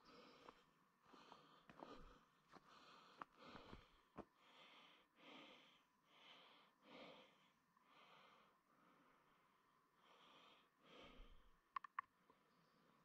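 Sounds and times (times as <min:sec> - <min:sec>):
sharp clicks: 0:11.7 - 0:12.1.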